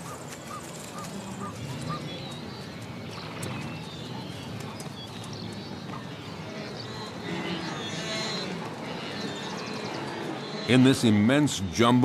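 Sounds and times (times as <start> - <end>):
low animal calls: 0.0 - 10.9
bird chirping: 0.5 - 11.4.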